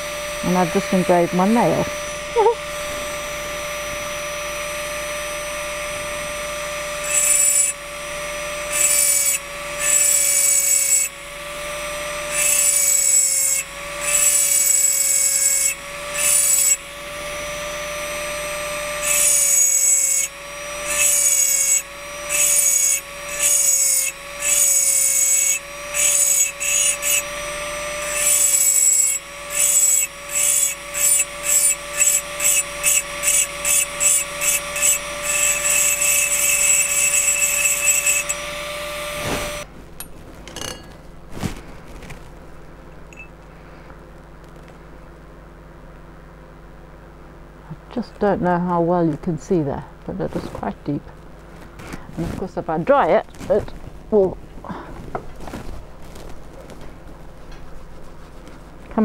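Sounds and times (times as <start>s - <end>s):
engraving drill grinding glass: 0.0s - 39.7s.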